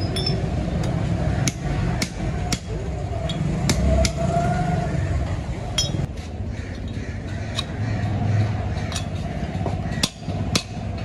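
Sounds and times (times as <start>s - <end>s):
sharp metal knocks: 6.8s - 11.0s.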